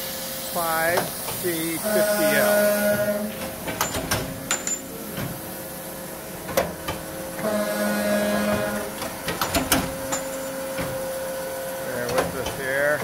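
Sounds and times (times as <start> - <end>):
saw machine humming: 0.0 - 13.0.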